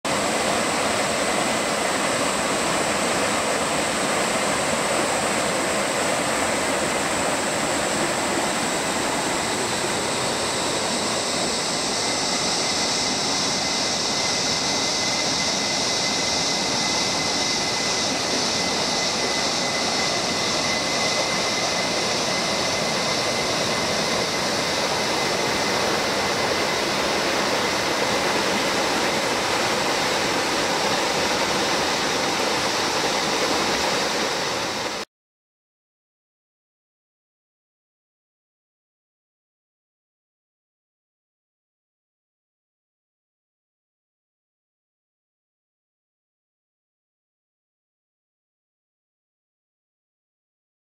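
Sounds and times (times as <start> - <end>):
river rapids rushing: 0.1 - 13.6, 21.2 - 35.0.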